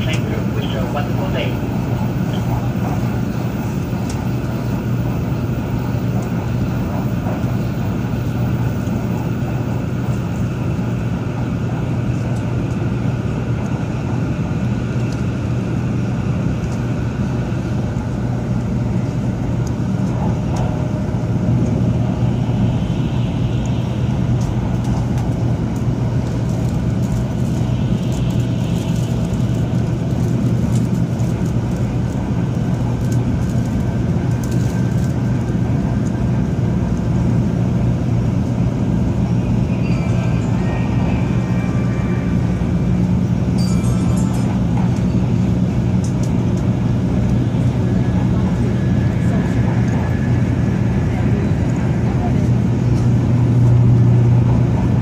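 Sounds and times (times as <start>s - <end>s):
constant low hum: 0.0s - 55.0s
train cabin rumble and rush: 0.0s - 55.0s.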